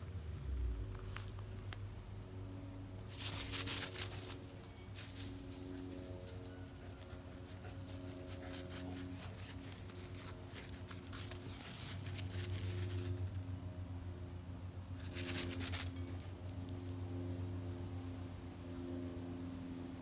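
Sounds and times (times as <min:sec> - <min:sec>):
gravel crunching under dog's paws: 0:00.5 - 0:01.9, 0:03.1 - 0:13.5, 0:15.0 - 0:16.8.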